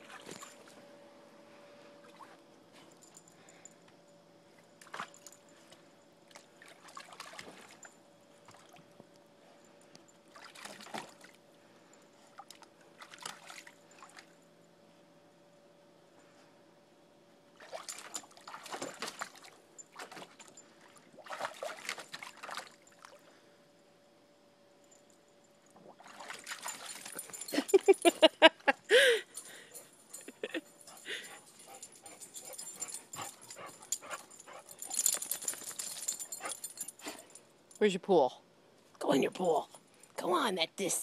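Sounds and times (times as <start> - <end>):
water splashing and sloshing: 0.0 - 0.7, 6.3 - 9.0, 10.3 - 11.4, 12.3 - 14.4, 17.6 - 23.3, 25.7 - 27.7.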